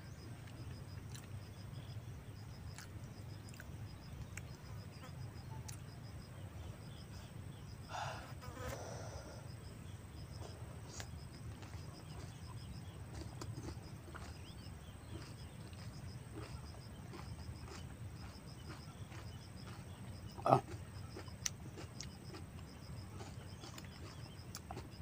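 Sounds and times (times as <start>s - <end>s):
soft chewing: 0.3s - 1.9s, 2.6s - 5.9s, 10.3s - 25.0s.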